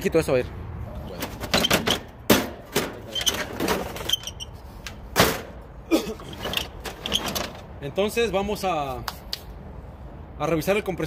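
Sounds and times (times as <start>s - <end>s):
metal cover knocking and scraping: 1.2s - 4.2s.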